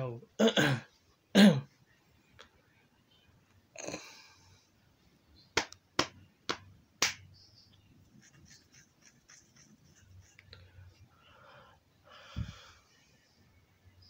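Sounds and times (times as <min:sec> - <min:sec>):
sharp loud snaps: 0:05.6 - 0:07.3.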